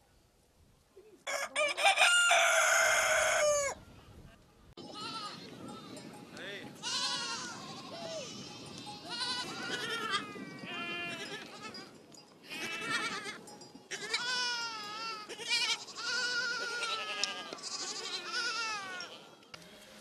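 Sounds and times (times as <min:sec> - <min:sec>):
sheep and goats bleating: 0:04.8 - 0:20.0.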